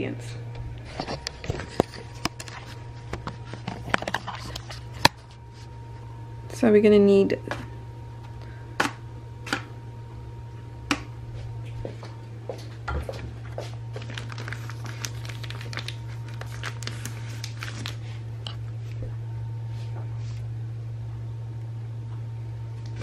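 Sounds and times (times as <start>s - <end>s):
steady low hum: 0.0s - 23.0s
small clicks and crinkles: 0.8s - 5.4s, 13.9s - 19.0s.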